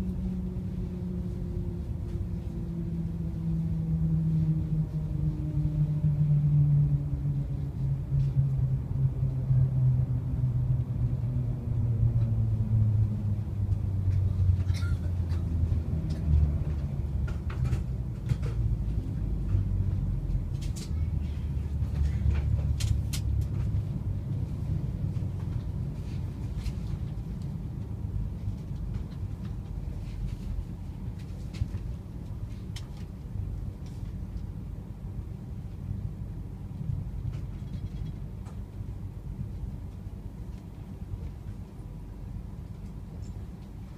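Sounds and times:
train low hum falling in pitch: 0.0 - 37.5.

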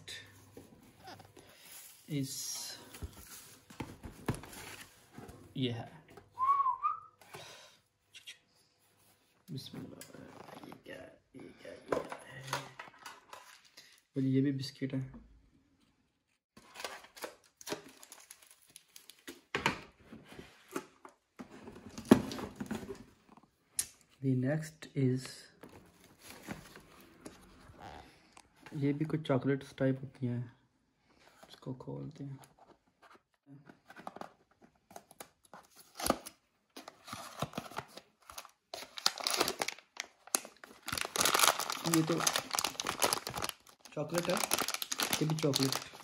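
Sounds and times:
packaging rustling: 16.6 - 19.3, 35.0 - 46.0.

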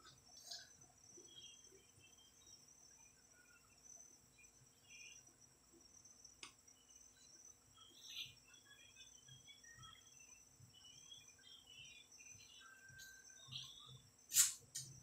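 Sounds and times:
faint chirps: 0.0 - 15.0
sharp click: 14.3 - 14.9.

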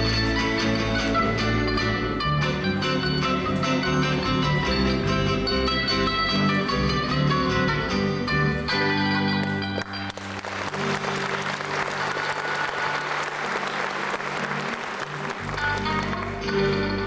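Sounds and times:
plucked-string dance music: 0.0 - 17.0
audience applauding: 9.4 - 16.4.

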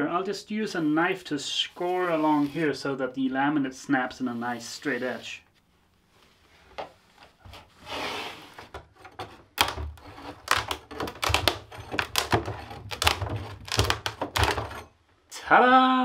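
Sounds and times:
knife scraping laminate: 7.6 - 14.9
laminate cracking and snapping: 9.0 - 14.9.

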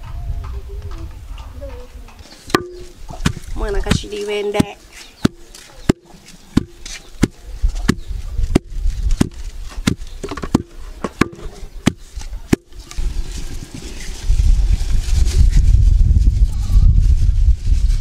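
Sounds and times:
pestle pounding in mortar: 2.5 - 12.8.

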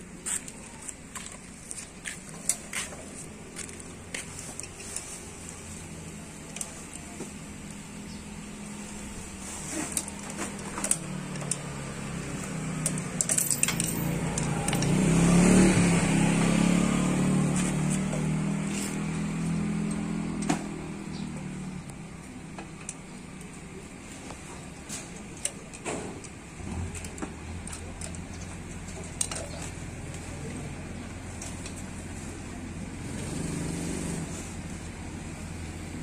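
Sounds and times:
vehicle engine passing: 8.7 - 22.5, 26.4 - 36.0.

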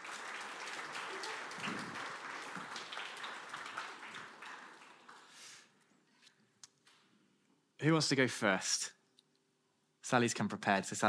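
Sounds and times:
congregation applauding: 0.0 - 5.8.

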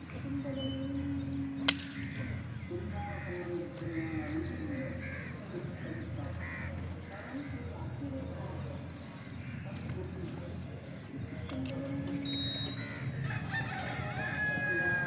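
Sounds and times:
crows cawing: 1.9 - 7.6, 12.8 - 15.0.

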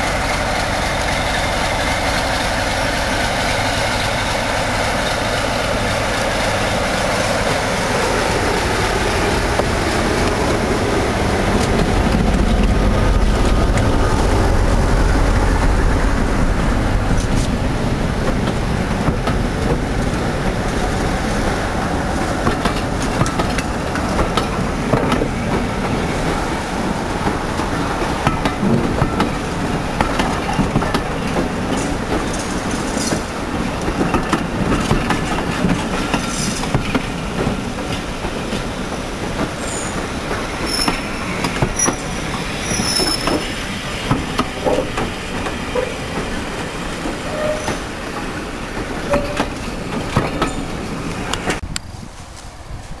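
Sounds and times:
train wheels clicking over rail joints: 0.0 - 52.5
train rumble: 0.0 - 53.0
high-pitched wheel squeals: 40.6 - 43.5, 47.2 - 47.8.

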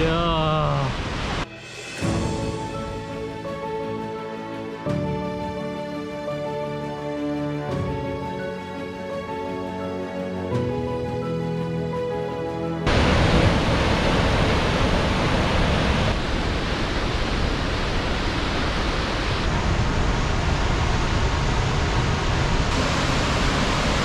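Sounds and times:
waterfall rushing: 0.0 - 2.1, 12.8 - 24.0.

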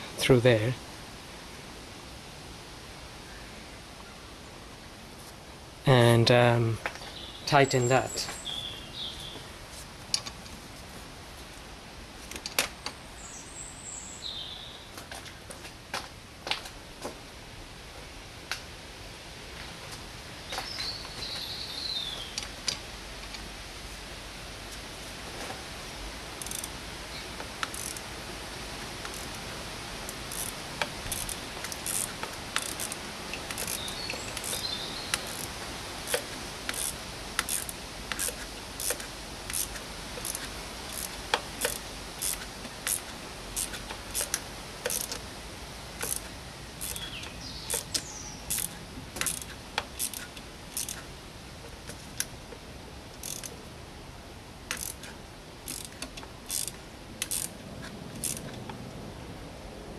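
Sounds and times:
ratchet wrench clicking: 26.4 - 26.8, 27.6 - 28.1, 29.0 - 29.4, 30.1 - 45.2, 46.0 - 47.1, 47.7 - 51.0, 53.2 - 53.5, 54.7 - 57.6, 58.2 - 58.4.

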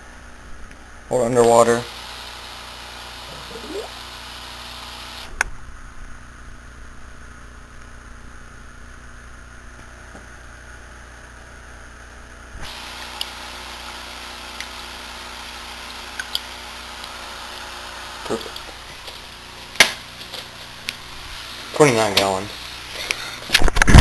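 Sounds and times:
aquarium air pump hum and hiss: 0.0 - 24.0.

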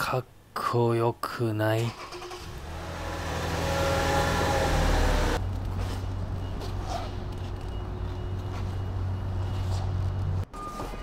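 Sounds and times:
van engine revving and idling: 2.3 - 5.4.

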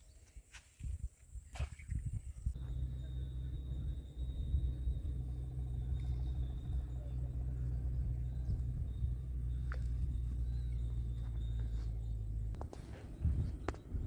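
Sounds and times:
low rumble: 2.5 - 14.0
faint high-pitched tone: 2.6 - 11.8.

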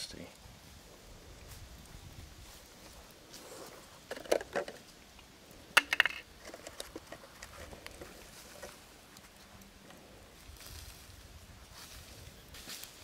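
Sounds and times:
small objects clicking and tapping: 4.0 - 5.0, 5.7 - 8.8.

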